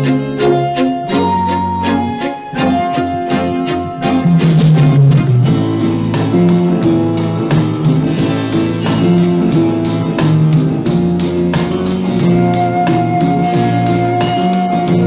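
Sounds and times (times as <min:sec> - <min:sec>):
instrumental film-score music: 0:00.0 - 0:15.0.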